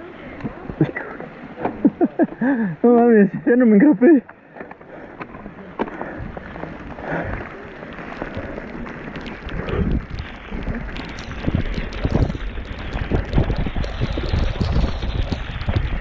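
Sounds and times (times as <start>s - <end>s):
tyre noise: 0.0s - 16.0s
bike clicks and knocks: 4.2s - 16.0s
wind on microphone: 8.2s - 16.0s.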